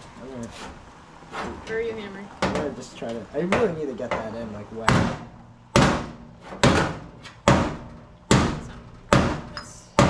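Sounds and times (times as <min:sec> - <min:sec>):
hammer striking sheet metal: 0:04.9 - 0:09.5.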